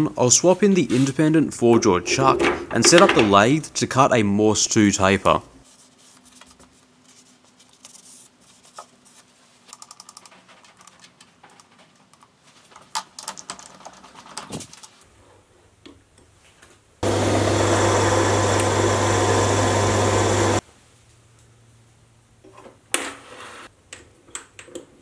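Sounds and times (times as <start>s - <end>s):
mini lathe running: 17.0s - 20.6s.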